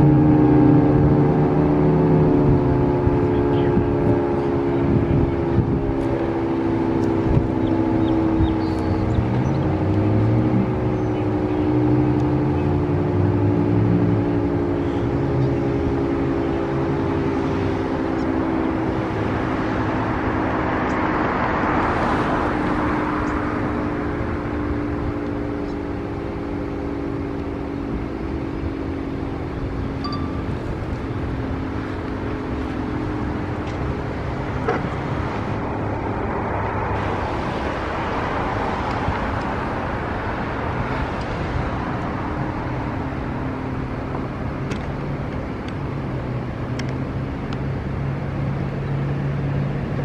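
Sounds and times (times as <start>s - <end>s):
warning siren multi-tone chord: 29.8s - 33.4s
rush of noise: 29.9s - 50.0s.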